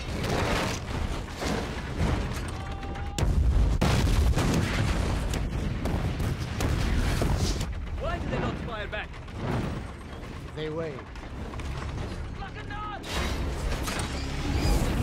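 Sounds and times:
fireball explosion booms: 3.2s - 8.6s
film music: 4.9s - 15.0s.

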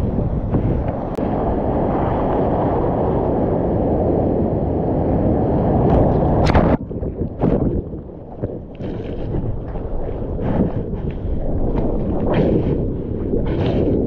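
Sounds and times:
surf water churning: 0.0s - 14.0s
water splashes: 5.9s - 14.0s.

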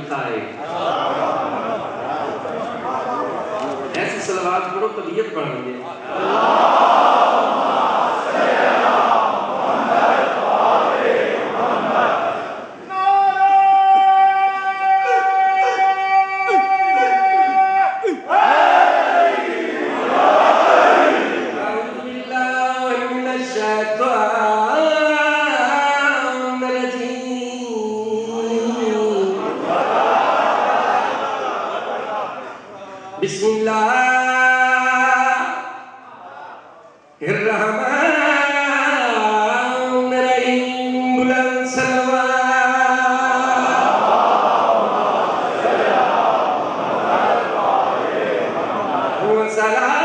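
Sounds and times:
crowd noise: 0.0s - 24.8s, 25.6s - 38.4s, 39.0s - 50.0s
man chanting into a microphone: 12.8s - 18.3s, 21.6s - 29.6s, 32.6s - 44.1s, 48.4s - 50.0s.

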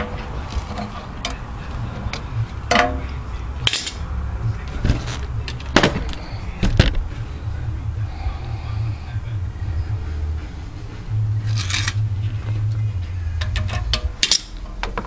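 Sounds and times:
steady low rumble: 0.0s - 15.0s
metal clicks and clanks: 3.6s - 4.0s, 13.4s - 15.0s.

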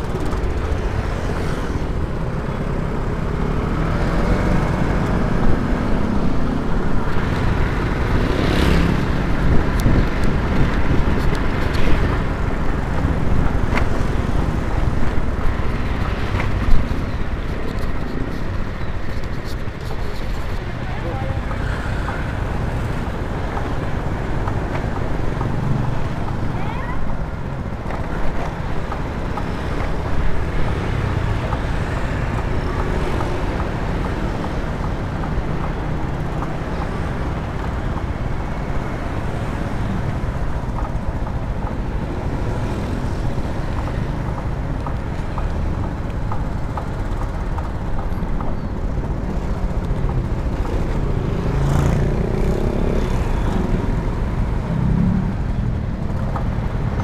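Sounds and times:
road and traffic rumble: 0.0s - 57.0s.

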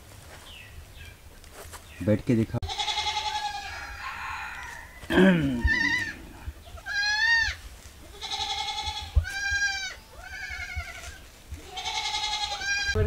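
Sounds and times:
goats bleating: 2.6s - 4.0s, 5.0s - 13.0s.

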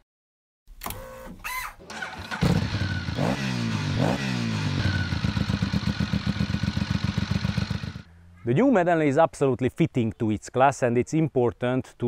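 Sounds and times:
starter whine: 0.8s - 8.0s
motorcycle engine revving and idling: 1.9s - 8.1s.

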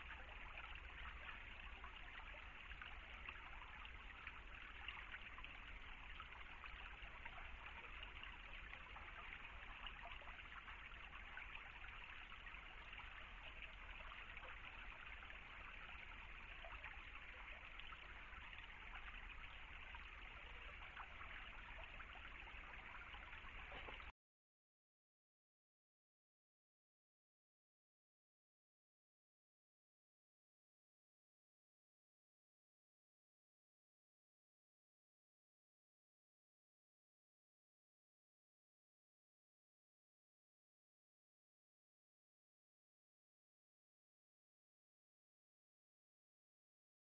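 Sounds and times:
stream trickling over stones: 0.0s - 24.1s.

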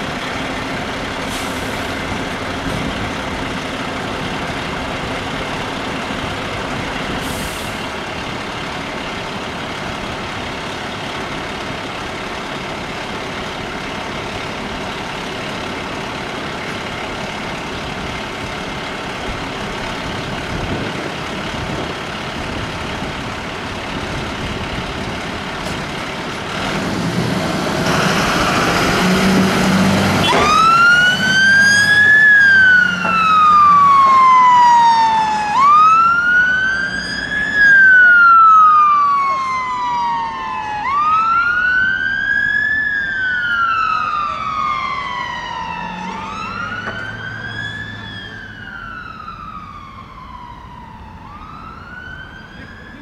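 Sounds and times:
diesel engine running: 0.0s - 53.0s
electronic siren wail: 30.2s - 53.0s.

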